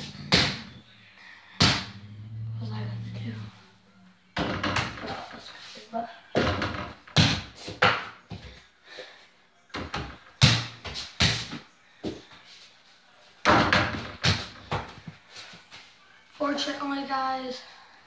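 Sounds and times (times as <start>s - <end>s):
ball bouncing on floor: 0.0s - 0.8s, 1.6s - 2.0s, 6.4s - 8.5s, 9.8s - 12.2s, 13.5s - 15.0s
ball thudding against hoop and door: 0.1s - 0.8s, 1.6s - 2.0s, 6.4s - 8.1s, 13.4s - 15.0s.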